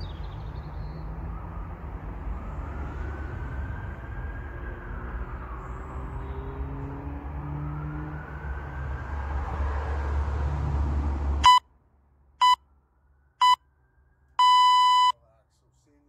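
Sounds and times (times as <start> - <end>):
road traffic rumble: 0.0 - 16.0
interval timer beeps: 11.4 - 11.6, 14.4 - 15.1.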